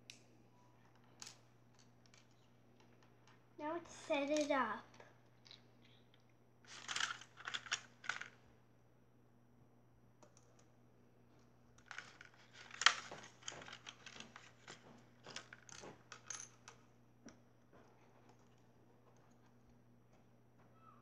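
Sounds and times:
plastic toy pieces clicking: 0:04.3 - 0:04.5, 0:06.7 - 0:08.3, 0:11.8 - 0:16.8.

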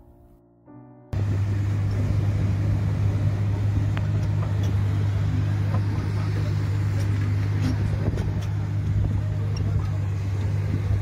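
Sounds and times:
excavator diesel engine running: 0:01.2 - 0:11.0.

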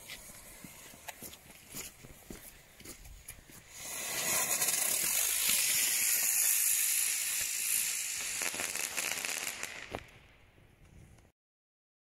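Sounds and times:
firework hissing: 0:00.0 - 0:01.2, 0:03.6 - 0:10.4
firework crackling pops: 0:03.6 - 0:11.3.

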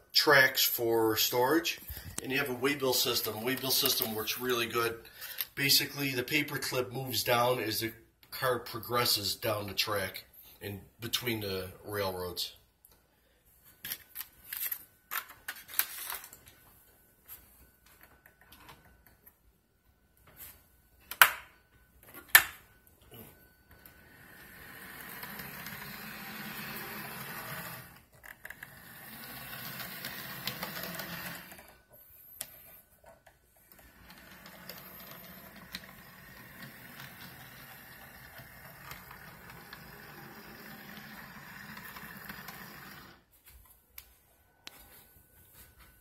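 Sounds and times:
model train motor whirring: 0:24.3 - 0:31.7, 0:33.8 - 0:43.2.

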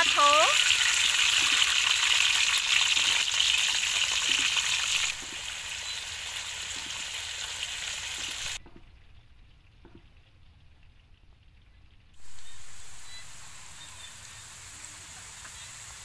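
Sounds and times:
potato slices sizzling in hot oil: 0:00.0 - 0:08.7, 0:12.2 - 0:16.0.

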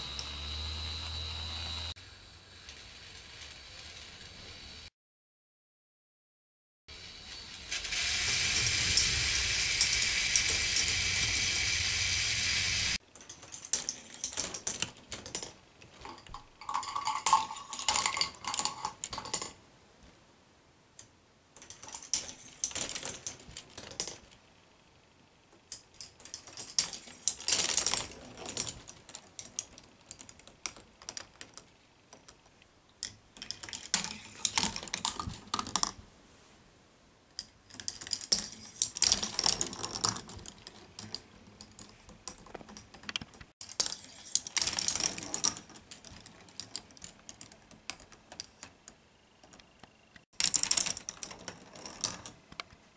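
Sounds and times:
plastic balls clattering along tracks: 0:07.6 - 0:19.6, 0:37.7 - 0:52.7.

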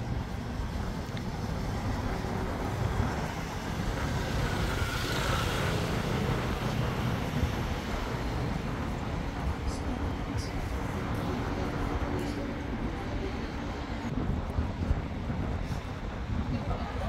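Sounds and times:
traffic rumble: 0:00.0 - 0:17.0.

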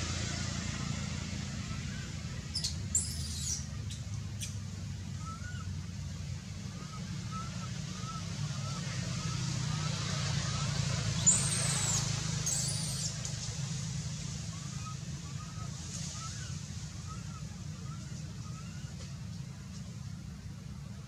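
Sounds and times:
baby monkey squealing: 0:02.6 - 0:03.6, 0:11.2 - 0:13.2.

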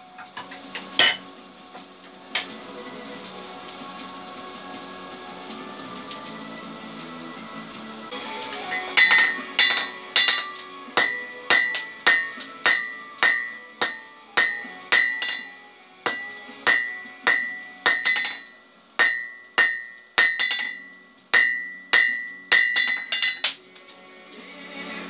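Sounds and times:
hammer striking steel on anvil: 0:00.8 - 0:01.3, 0:08.7 - 0:23.6
anvil ringing: 0:01.0 - 0:01.3, 0:08.7 - 0:23.6.

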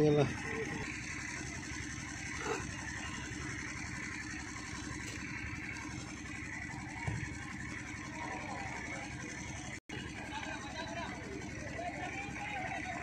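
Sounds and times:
spectators murmuring: 0:06.2 - 0:13.0.

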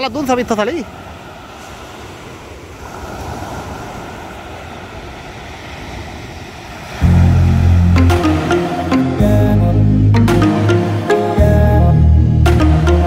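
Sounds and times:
music with deep bass: 0:07.0 - 0:13.0.

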